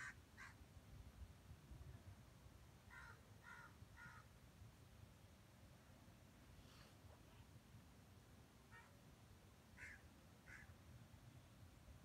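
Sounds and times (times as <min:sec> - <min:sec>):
bird calling: 0:09.8 - 0:10.7.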